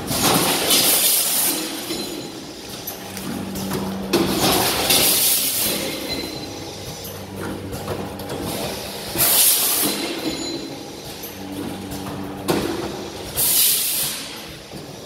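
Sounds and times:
packing machine humming: 0.0s - 15.0s
air hissing bursts: 13.0s - 14.4s.

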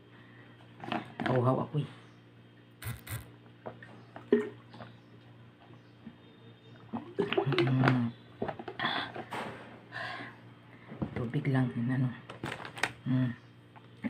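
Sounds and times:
short clicks: 2.8s - 3.3s
short voiced sound: 2.8s - 3.3s.

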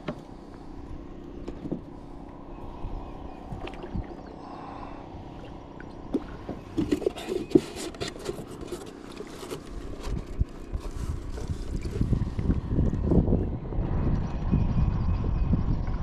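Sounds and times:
wind rumble on microphone: 0.0s - 7.8s, 9.7s - 16.0s
fishing tackle clicks and scrapes: 6.8s - 12.0s.

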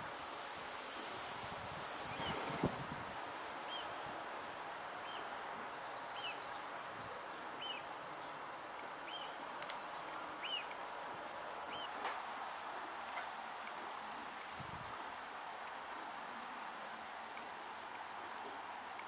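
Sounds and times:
wind and rustling: 0.0s - 19.0s.

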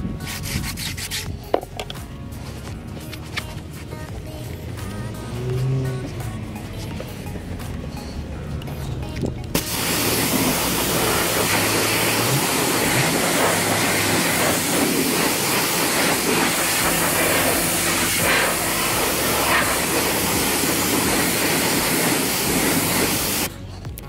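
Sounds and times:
pressure washer spraying water: 9.5s - 23.5s.

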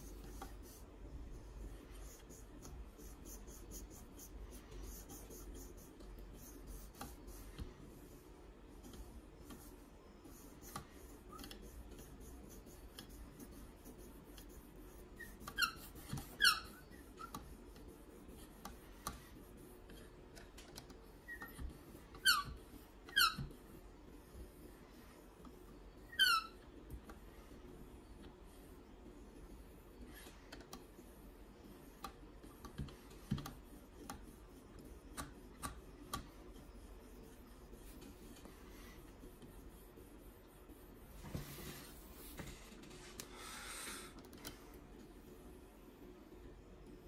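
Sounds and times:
short high squeaks: 15.2s - 16.8s.

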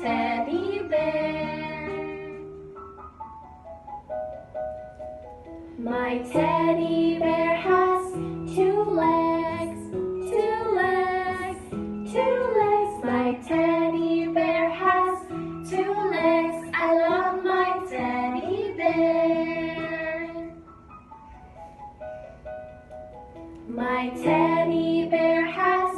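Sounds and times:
women singing: 0.0s - 2.4s, 5.8s - 20.5s, 23.7s - 25.9s
backing music: 0.0s - 25.9s.

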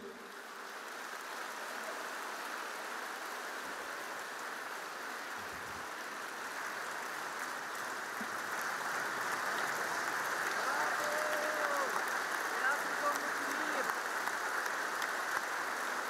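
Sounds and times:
audience applauding: 5.9s - 16.0s.

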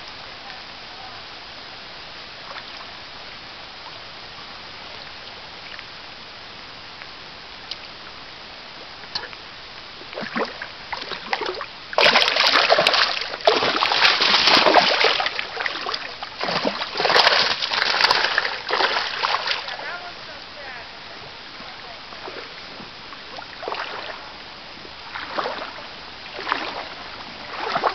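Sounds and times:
shallow stream running: 0.0s - 27.9s
fish splashing at the surface: 10.2s - 19.8s, 25.1s - 27.9s.

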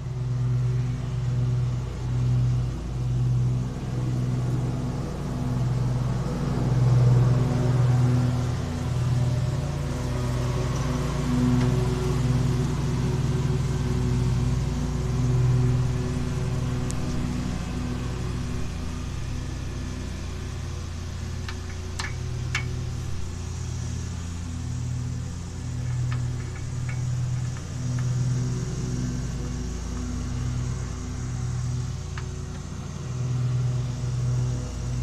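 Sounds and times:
lawn mower engine running: 0.0s - 35.0s
sharp metal clicks: 21.4s - 22.8s, 25.8s - 28.1s.

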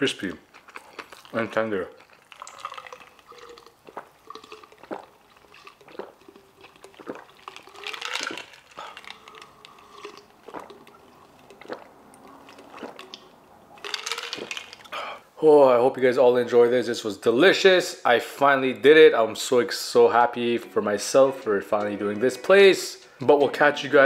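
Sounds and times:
person gulping drink: 0.2s - 15.3s
liquid sloshing: 0.5s - 15.0s
ice cubes shifting against glass: 0.7s - 11.6s, 12.3s - 14.9s.

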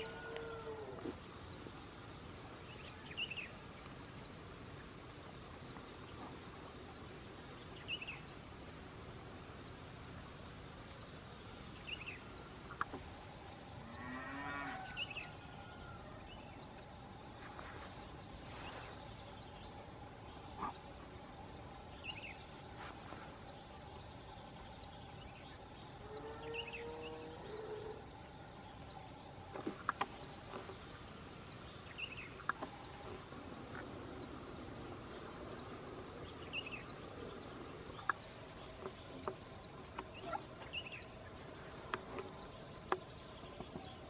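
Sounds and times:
animal low call: 0.0s - 1.2s
insects droning: 0.0s - 44.0s.

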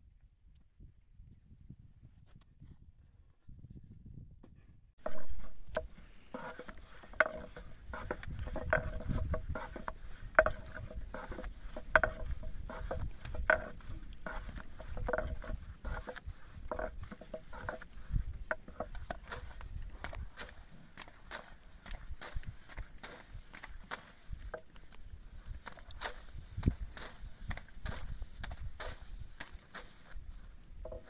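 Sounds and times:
rolling pin knocking on wooden board: 5.0s - 17.8s.

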